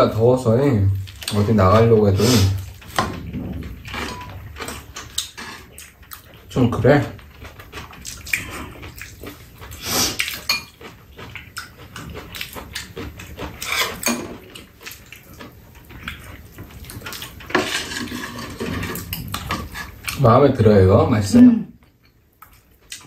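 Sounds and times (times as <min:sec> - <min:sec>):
chewing and slurping: 0:01.0 - 0:20.3, 0:21.8 - 0:23.0
dishes clattering: 0:02.6 - 0:06.0, 0:10.4 - 0:10.9, 0:12.9 - 0:14.5, 0:16.1 - 0:20.1
spoons clinking on ceramic bowls: 0:10.5 - 0:10.7.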